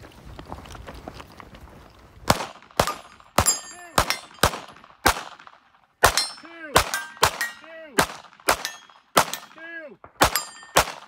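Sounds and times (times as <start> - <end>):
pistol shots: 2.3 - 11.0
steel plates ringing: 3.0 - 4.4, 6.1 - 7.8, 8.6 - 9.6, 10.3 - 10.8.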